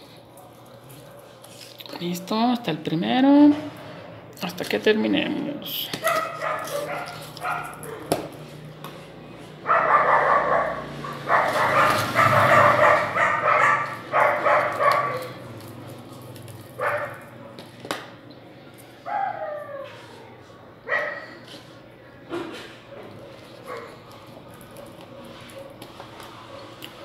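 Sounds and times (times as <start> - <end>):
dog whining: 19.1 - 20.4.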